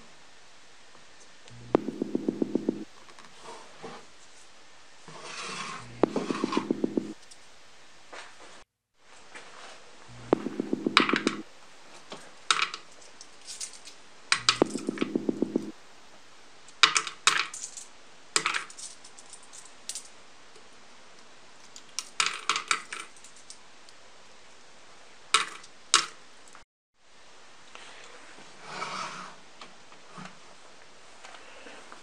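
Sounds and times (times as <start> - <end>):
coin rattling and spinning: 6.0 - 7.2, 10.4 - 11.4, 14.4 - 15.7.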